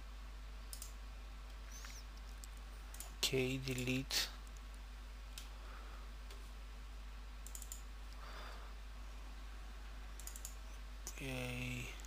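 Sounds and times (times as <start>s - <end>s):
steady low hum: 0.0s - 12.0s
computer mouse clicks: 0.7s - 4.7s, 7.4s - 8.2s, 10.2s - 11.2s.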